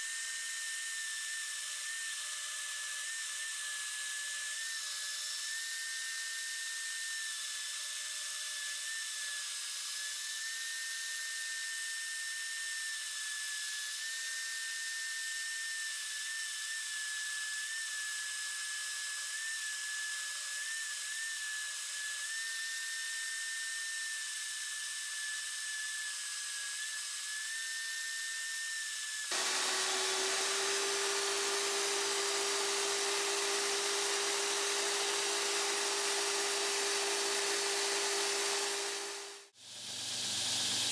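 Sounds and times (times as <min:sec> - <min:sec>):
drill press whining: 0:29.3 - 0:40.9.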